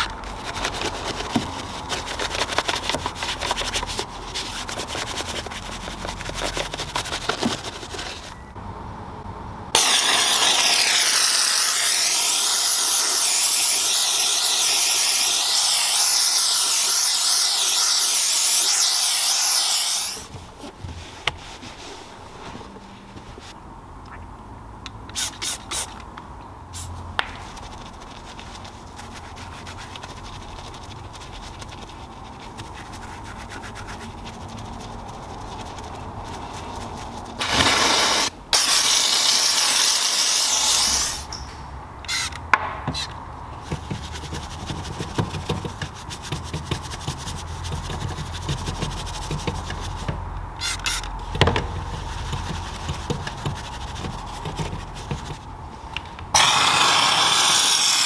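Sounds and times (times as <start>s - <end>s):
spray hiss: 37.4s - 41.3s, 56.4s - 58.0s
brush scrubbing metal pedal: 43.7s - 51.0s, 51.7s - 55.4s.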